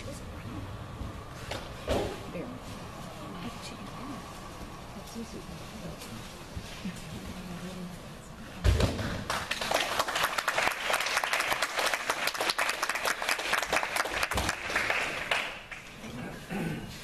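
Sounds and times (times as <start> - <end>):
audience applauding: 9.3 - 15.9.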